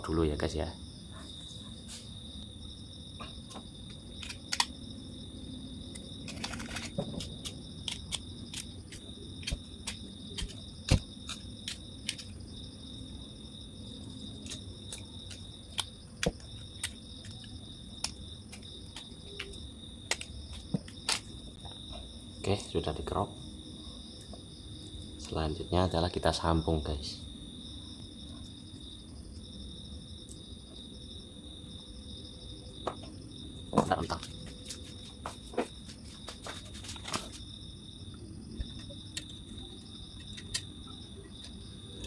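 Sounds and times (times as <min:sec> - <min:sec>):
crickets chirring: 0:00.0 - 0:42.0
wire enamel scraping clicks: 0:04.2 - 0:04.7, 0:05.9 - 0:12.3, 0:40.2 - 0:40.7.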